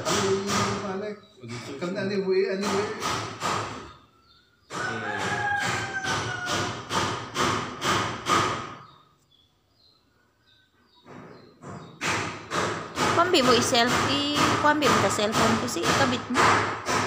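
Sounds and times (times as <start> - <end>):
music with thumping beat: 12.2 - 17.0.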